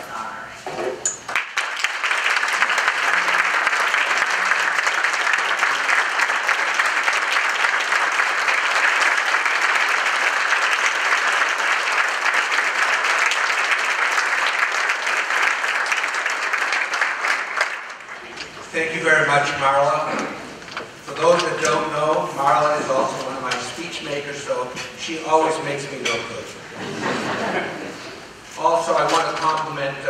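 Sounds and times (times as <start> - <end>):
audience applauding: 1.3 - 18.5.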